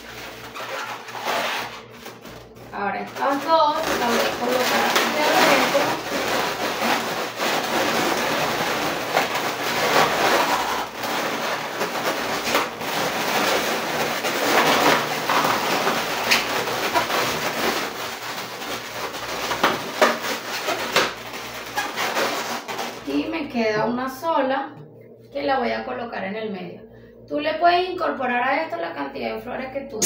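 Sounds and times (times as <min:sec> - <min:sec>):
balloons rubbing and creaking: 0:00.0 - 0:23.2.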